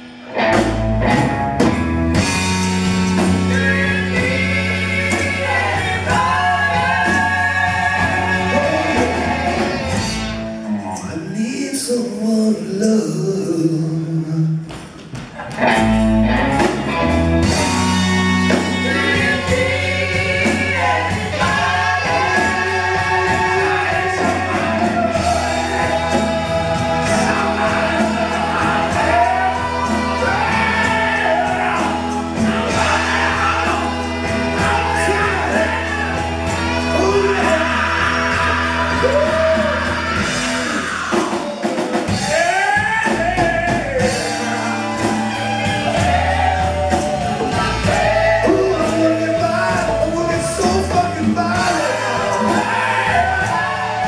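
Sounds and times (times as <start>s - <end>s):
vocals singing: 0.0s - 15.5s, 16.2s - 54.0s
rock band playing: 0.0s - 54.0s.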